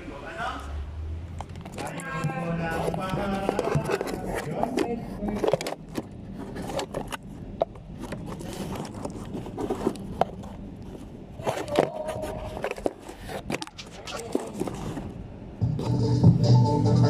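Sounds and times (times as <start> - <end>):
faint voice: 11.4 - 12.8.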